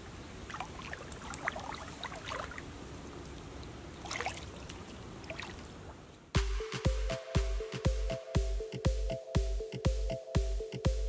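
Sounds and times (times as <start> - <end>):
water lapping: 0.1 - 6.1
water drips and plinks: 0.4 - 5.8.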